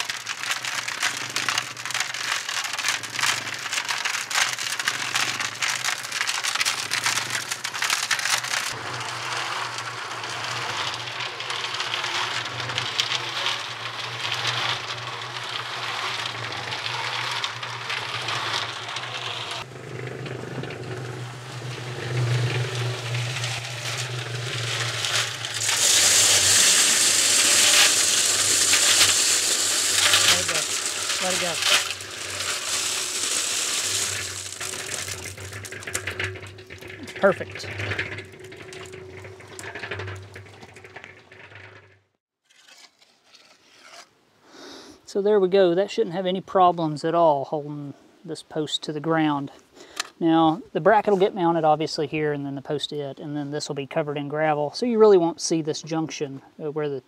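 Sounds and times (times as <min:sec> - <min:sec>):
cement mixer motor hum: 0:00.0 - 0:42.2
concrete pouring out: 0:00.0 - 0:43.3
concrete tumbling in drum: 0:00.0 - 0:43.6.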